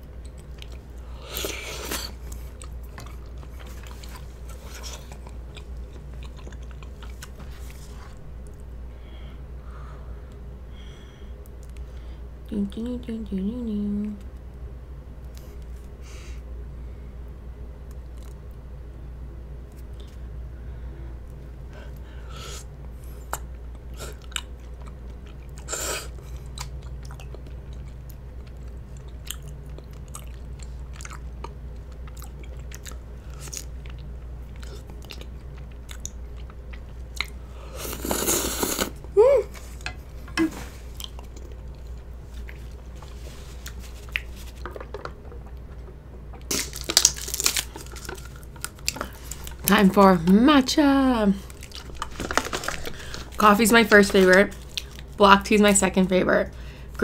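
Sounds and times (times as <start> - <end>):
wet chewing with mouth clicks: 0.1 - 8.7, 23.2 - 39.0, 40.8 - 49.8, 54.5 - 55.2.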